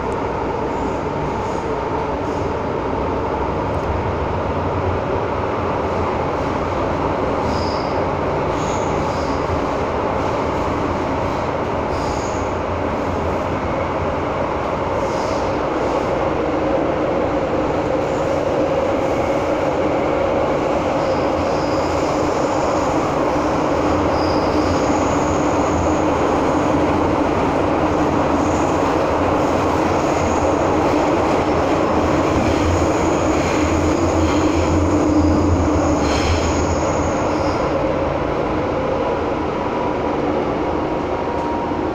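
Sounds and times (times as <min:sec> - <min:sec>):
train wheels roaring on rail: 0:00.0 - 0:41.9
high wheel squeals: 0:24.1 - 0:25.9.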